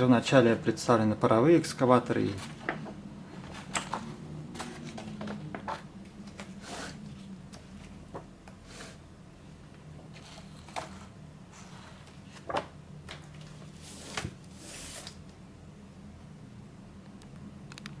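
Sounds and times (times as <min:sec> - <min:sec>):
book pages turning: 0:03.4 - 0:08.8, 0:10.1 - 0:15.3.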